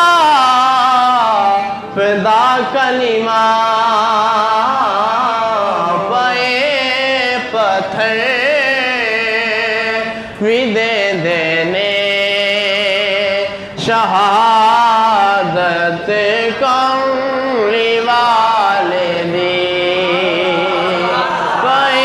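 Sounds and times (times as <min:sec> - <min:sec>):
man singing devotional song: 0:00.0 - 0:22.0.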